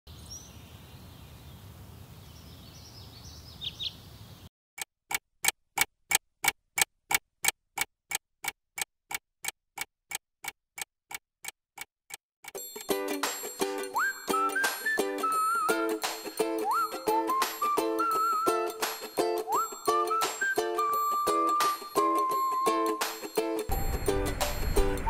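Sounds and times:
bird chirps: 0.1 - 4.5
desk clock ticking: 5.1 - 12.7.

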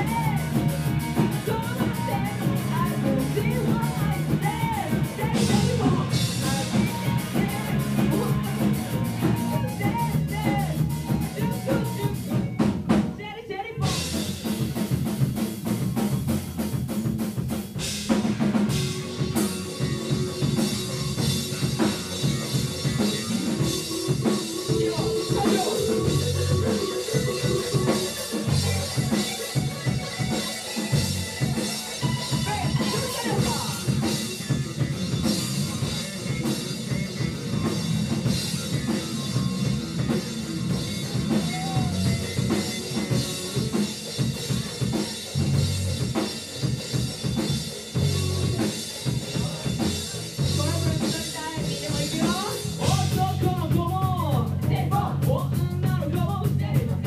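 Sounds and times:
drum kit: 0.0 - 57.0
live rock band playing: 0.0 - 57.0.

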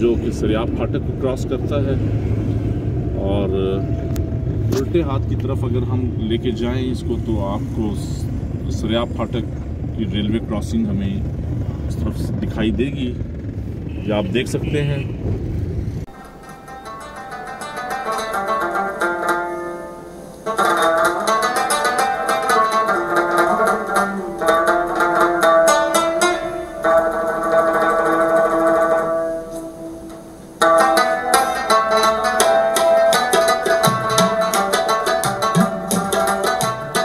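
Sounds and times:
plucked string instrument music: 16.1 - 37.0.

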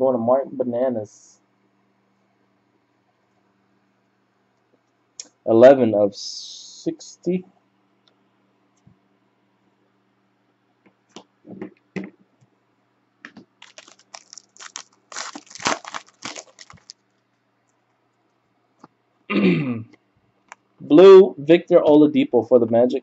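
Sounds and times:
foil wrapper tearing and crinkling: 13.6 - 17.0.

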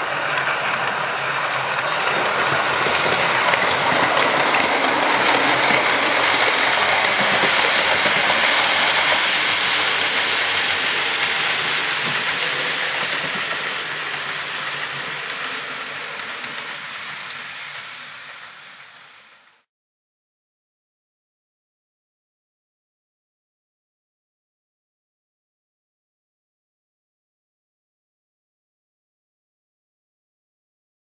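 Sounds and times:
model train rumble and rail clatter: 0.0 - 19.6.

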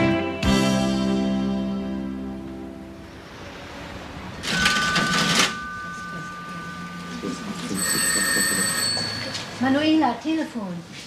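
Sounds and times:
cash register mechanism clatter: 4.4 - 5.8
cash register bell ringing: 4.4 - 10.0.

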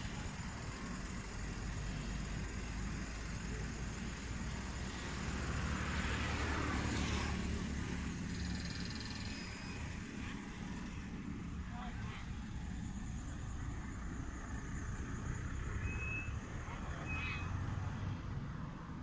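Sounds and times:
vehicle engine running: 0.0 - 19.0
vehicle passing: 4.2 - 15.8.

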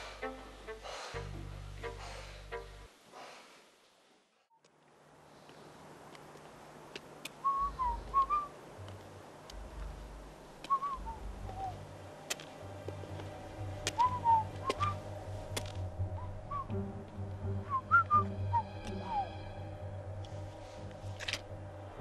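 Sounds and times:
person whistling a slow tune: 7.4 - 8.5, 10.7 - 11.8, 14.0 - 15.0, 16.2 - 16.8, 17.6 - 19.3.

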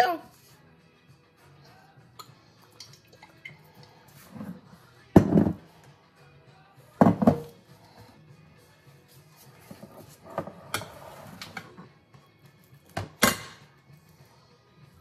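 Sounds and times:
soft background music: 0.0 - 15.0
glass baking dish knocked on countertop: 5.2 - 5.6, 7.0 - 7.5.

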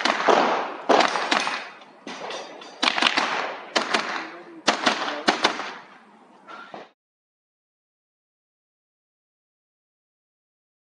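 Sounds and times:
rifle shots echoing: 0.0 - 6.1.

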